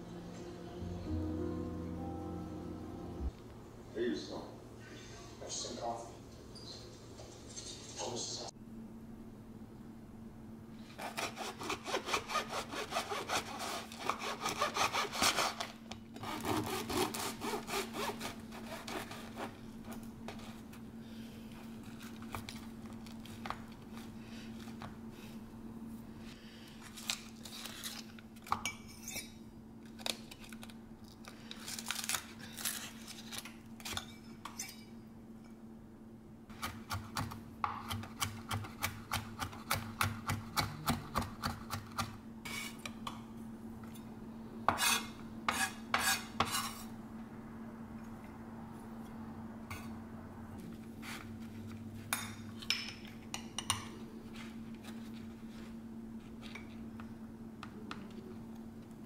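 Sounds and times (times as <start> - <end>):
steady low hum: 0.0 - 7.2.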